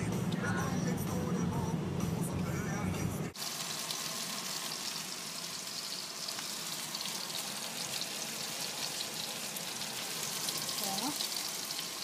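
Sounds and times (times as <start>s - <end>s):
food sizzling in a pan: 3.4s - 12.0s.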